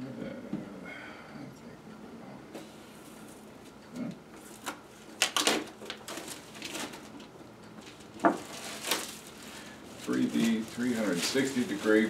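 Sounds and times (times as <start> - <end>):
plastic wrap crinkling and tearing: 4.4 - 12.0.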